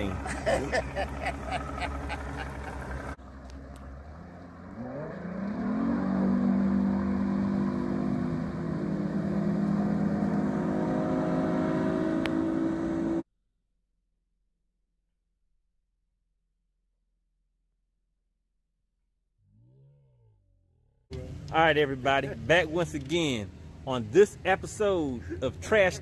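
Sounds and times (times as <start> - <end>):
outboard motor revving: 0.0 - 13.2.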